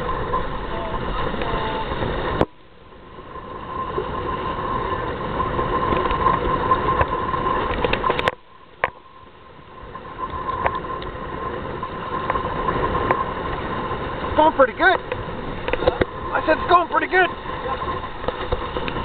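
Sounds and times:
water rushing past hulls: 0:00.0 - 0:19.0
wind buffeting microphone: 0:09.7 - 0:19.0.

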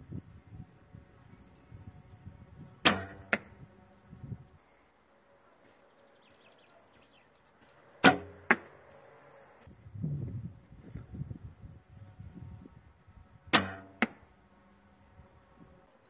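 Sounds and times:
bow string slap: 0:02.8 - 0:03.5, 0:08.0 - 0:08.7, 0:13.5 - 0:14.2
arrow hitting target: 0:02.8 - 0:03.6, 0:08.0 - 0:08.8, 0:13.5 - 0:14.3.

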